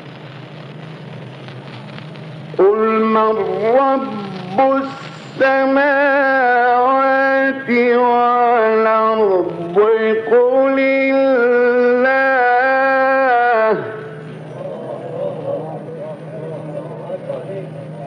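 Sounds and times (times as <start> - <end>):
man reciting melodically: 2.6 - 14.2.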